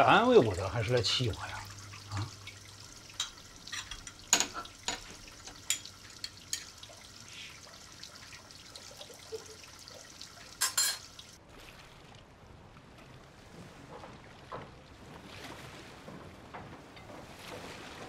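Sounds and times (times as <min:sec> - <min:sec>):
dishes clattering: 0:03.1 - 0:06.8, 0:10.6 - 0:11.2
dishes clinking and knocking: 0:03.1 - 0:06.8, 0:10.6 - 0:11.2
tap running into metal sink: 0:03.1 - 0:06.8.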